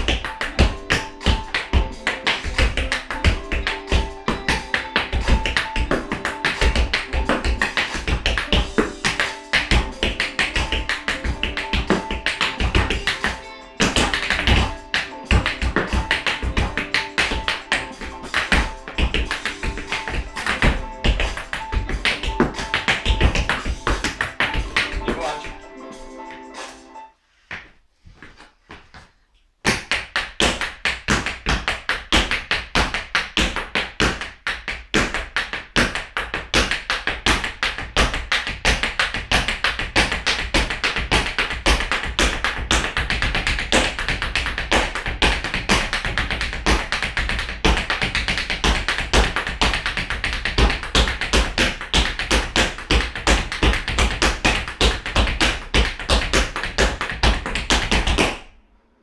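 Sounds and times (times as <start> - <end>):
tap shoes on wooden floor: 0.0 - 25.6, 27.5 - 58.5.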